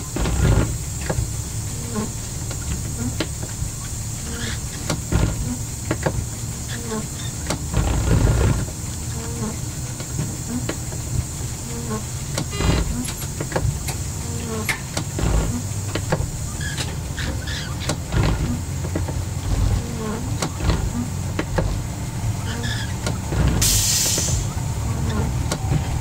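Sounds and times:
clicks and knocks over track: 0:00.0 - 0:11.3
railcar diesel engine rumble: 0:00.0 - 0:26.0.

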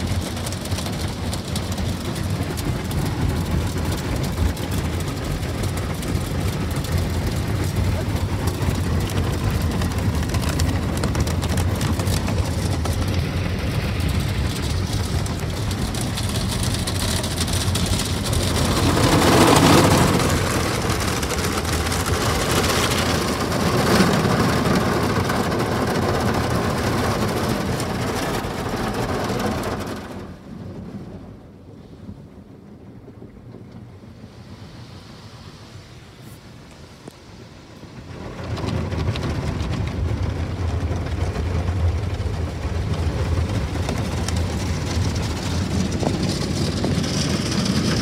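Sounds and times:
water spray rushing: 0:00.0 - 0:30.1.

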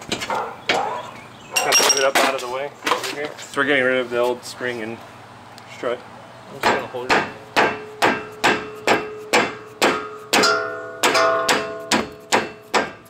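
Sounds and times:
hammer striking metal: 0:06.6 - 0:13.0.

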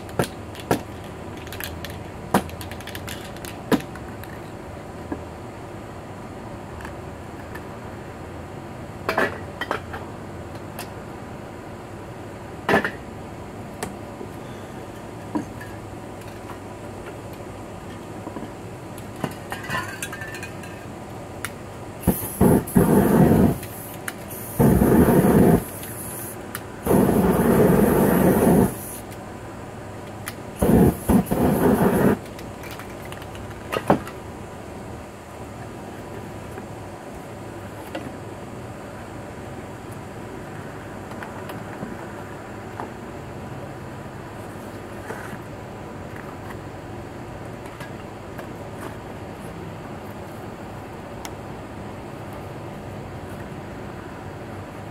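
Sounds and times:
spray paint can hissing: 0:22.0 - 0:29.2, 0:30.6 - 0:32.3.

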